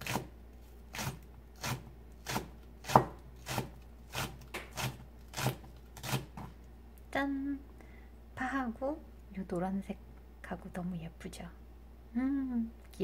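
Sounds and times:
knife chopping on cutting board: 0.0 - 0.3, 0.9 - 6.5.

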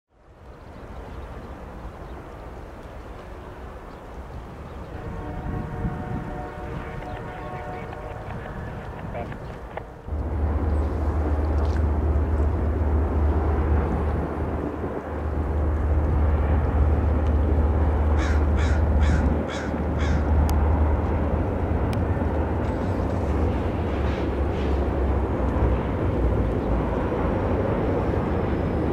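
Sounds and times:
low rumble: 5.0 - 28.9
crow cawing: 18.2 - 20.3.

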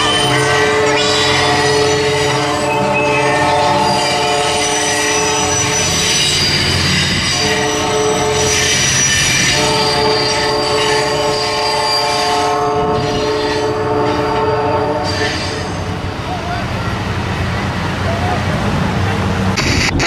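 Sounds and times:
train horn blasts: 0.0 - 5.9, 7.2 - 15.7
high wheel squeal: 0.0 - 16.0
rumble of rolling train cars: 0.0 - 20.0.

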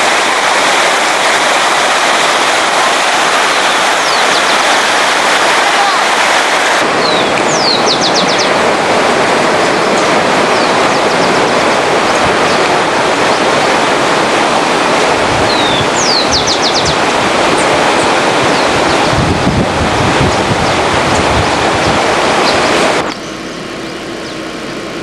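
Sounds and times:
stream water rushing: 0.0 - 25.0
bird singing: 4.0 - 4.8, 7.0 - 8.6, 10.0 - 11.4, 15.5 - 17.0, 21.8 - 24.5.

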